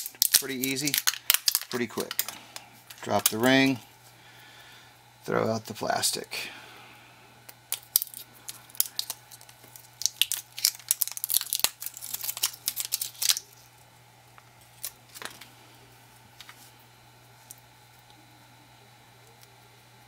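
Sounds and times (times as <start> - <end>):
plastic wrap crinkling and tearing: 0.0 - 3.5, 7.7 - 13.7.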